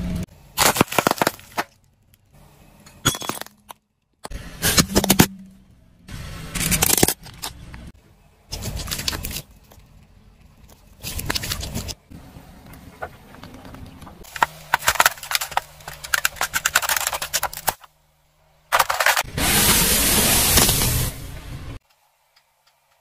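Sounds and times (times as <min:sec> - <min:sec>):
tyre crunching objects: 0:00.5 - 0:01.9, 0:13.3 - 0:17.9.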